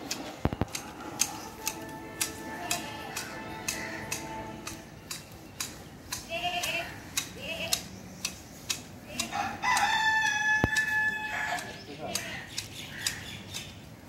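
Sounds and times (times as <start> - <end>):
chickens calling: 0.0 - 13.9
hedge shears snipping: 0.0 - 13.9
rooster crowing: 9.3 - 11.7.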